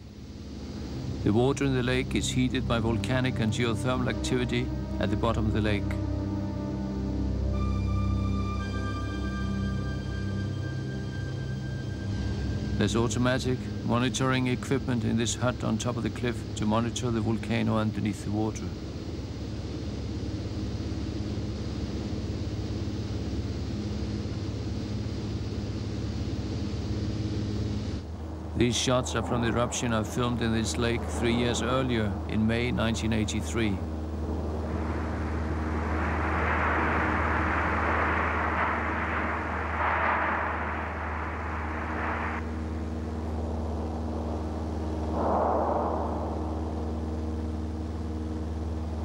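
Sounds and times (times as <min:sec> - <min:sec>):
propeller aircraft engine drone: 0:00.0 - 0:49.0
rushing hiss: 0:34.3 - 0:43.2.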